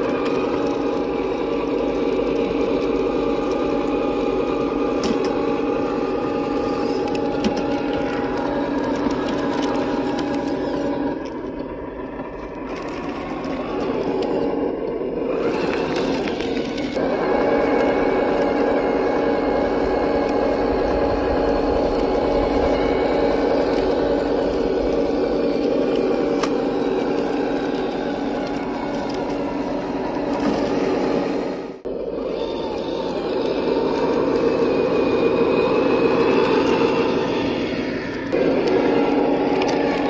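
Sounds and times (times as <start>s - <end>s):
tyres crackling over dry grass: 0.0s - 14.6s
simulated diesel truck engine: 0.0s - 40.0s.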